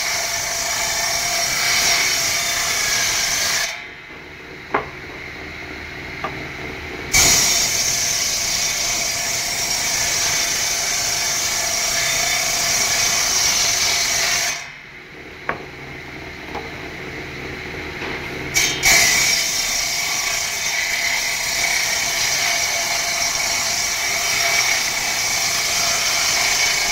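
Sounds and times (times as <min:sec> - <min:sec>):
table saw cutting boards: 0:00.0 - 0:03.8, 0:04.7 - 0:14.7, 0:18.4 - 0:26.9
sharp knocks: 0:04.1 - 0:05.6.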